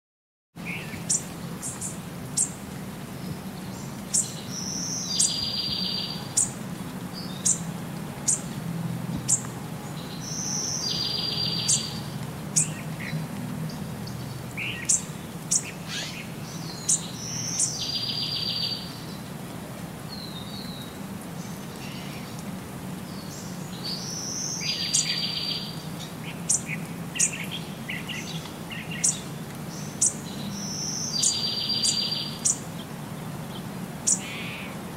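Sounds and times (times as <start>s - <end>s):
birds chirping: 0.6s - 19.3s, 20.1s - 34.9s
bird trill: 30.0s - 32.6s.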